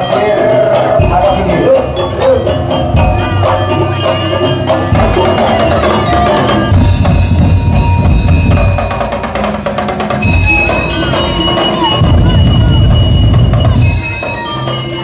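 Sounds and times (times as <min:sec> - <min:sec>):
held melody: 0:00.0 - 0:15.0
percussion ensemble drumming: 0:00.0 - 0:15.0
heavy bass drum: 0:04.9 - 0:14.2.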